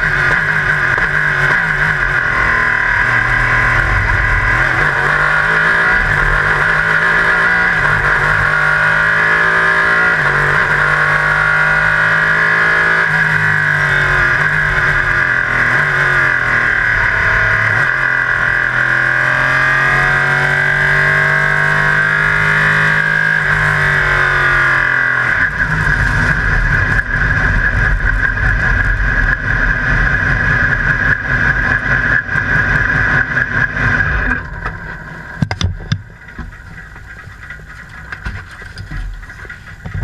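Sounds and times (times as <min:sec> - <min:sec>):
race car engine with whine: 0:00.0 - 0:40.0
clicks and knocks: 0:34.4 - 0:36.8.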